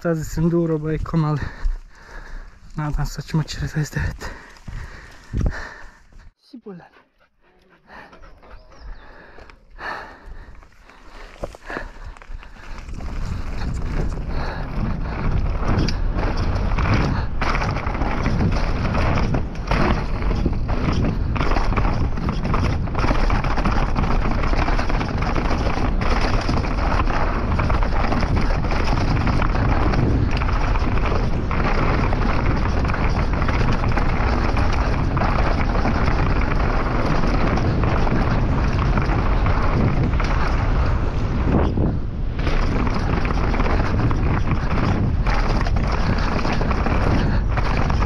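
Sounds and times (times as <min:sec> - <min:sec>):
tyres rumbling over dirt: 0:00.0 - 0:06.3, 0:07.9 - 0:48.0
wind rushing over microphone: 0:00.0 - 0:06.3, 0:07.9 - 0:48.0
bike knocking and clattering: 0:09.8 - 0:48.0.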